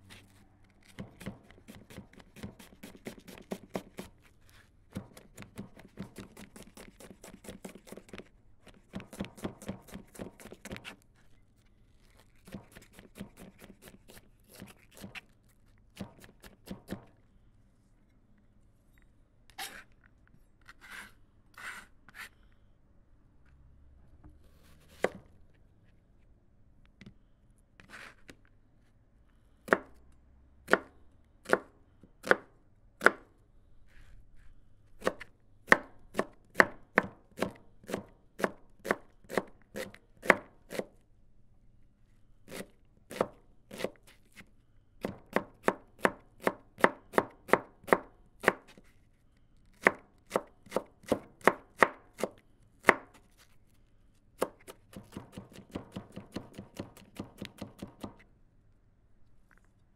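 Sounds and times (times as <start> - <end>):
knife chopping on cutting board: 54.4 - 58.2.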